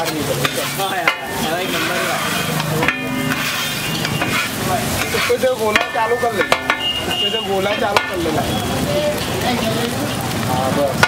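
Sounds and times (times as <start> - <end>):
metal spatulas scraping griddle: 0.0 - 8.4
food sizzling: 0.0 - 11.0.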